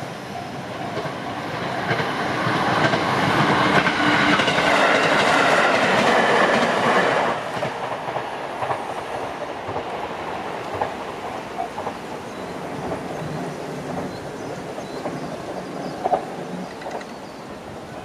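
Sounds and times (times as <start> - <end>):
train wheels clattering over rail joints: 12.8 - 17.2.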